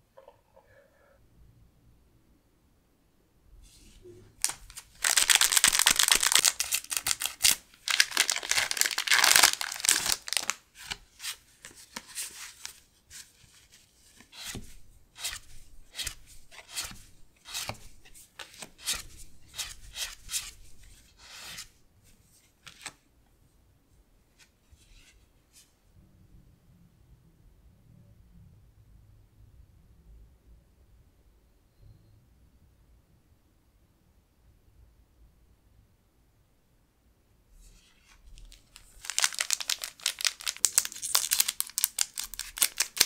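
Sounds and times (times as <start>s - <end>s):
foil wrapper crinkling and tearing: 4.4s - 10.6s, 38.4s - 43.0s.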